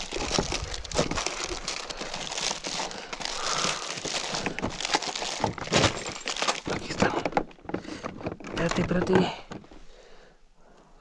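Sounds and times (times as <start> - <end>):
plastic packaging crinkling: 0.0 - 9.1
clicks and knocks of tackle: 3.6 - 9.8.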